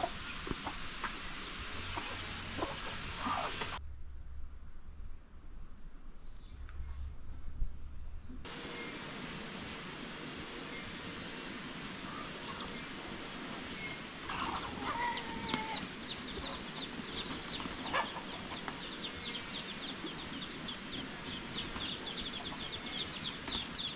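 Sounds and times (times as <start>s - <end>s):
chickens clucking: 0.0s - 3.8s, 12.0s - 23.9s
background hiss: 0.0s - 23.9s.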